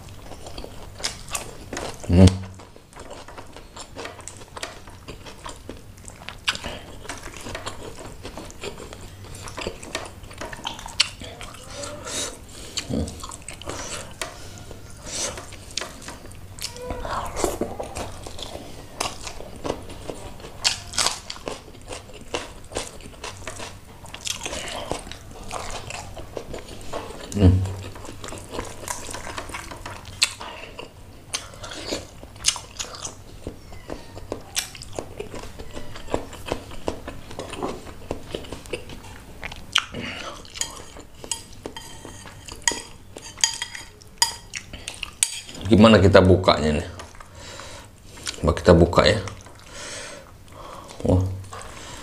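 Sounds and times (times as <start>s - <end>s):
person chewing: 0.0s - 45.7s, 46.9s - 48.5s, 49.2s - 52.0s
person humming: 27.4s - 27.8s.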